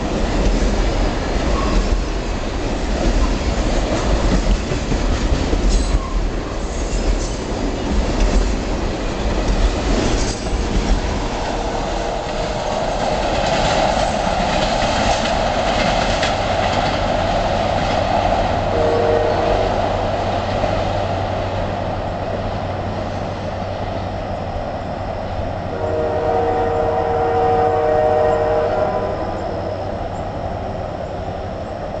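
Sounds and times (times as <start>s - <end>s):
train wheels clacking over rail joints: 0.0s - 18.6s
freight train rumbling: 0.0s - 32.0s
distant train horn: 18.7s - 20.0s, 25.7s - 30.2s.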